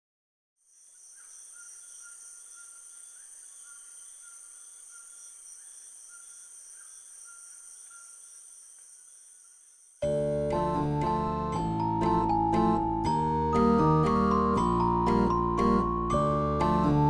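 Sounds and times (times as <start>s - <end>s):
high-pitched cricket trill: 0.6s - 10.1s
lower broken insect trill: 0.6s - 10.1s.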